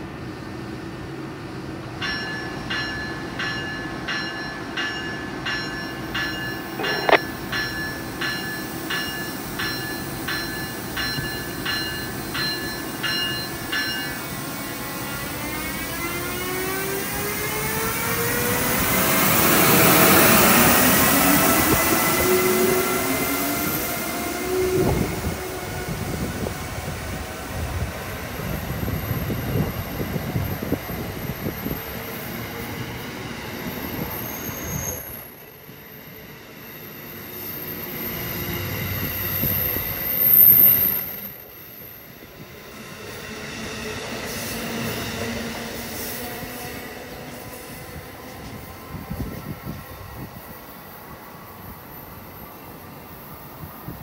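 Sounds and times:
electric locomotive whine: 0.0 - 54.0
train wheels rumbling on rails: 0.0 - 54.0
high wheel squeal: 33.4 - 41.4.

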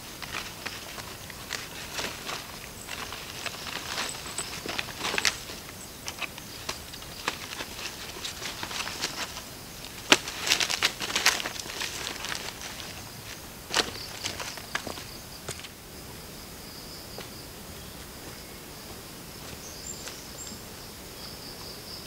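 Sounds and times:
footsteps crunching on dry leaves: 0.0 - 15.8, 18.1 - 20.3
sticks and leaves crackling: 0.0 - 15.8
branch cracking: 0.2 - 15.0.

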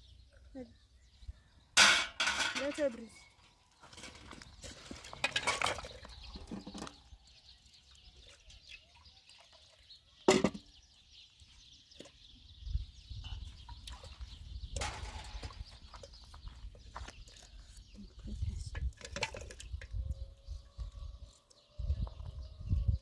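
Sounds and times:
pots clinking in water: 3.9 - 7.0.

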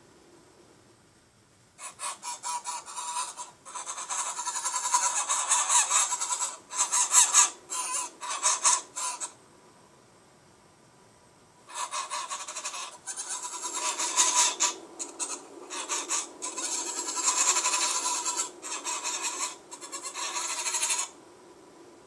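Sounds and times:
geese honking: 2.0 - 9.3, 11.7 - 21.1.

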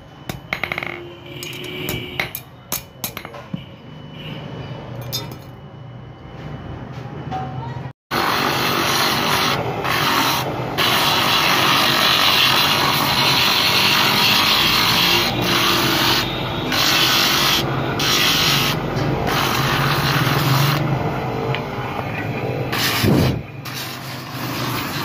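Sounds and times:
drum sander grinding wood: 8.1 - 21.0.

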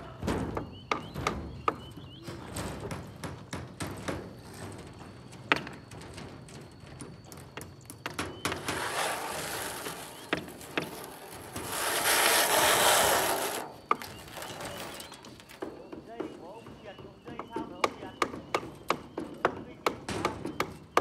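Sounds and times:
plywood panel scraping across boards: 8.5 - 15.2.

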